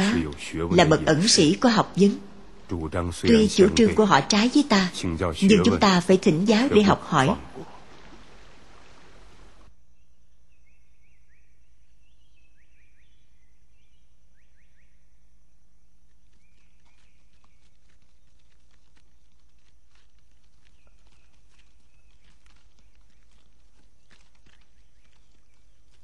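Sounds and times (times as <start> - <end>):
small birds chirping: 0.0 - 15.3, 16.1 - 26.0
steady low hum: 0.0 - 26.0
footsteps on the ground: 16.0 - 26.0.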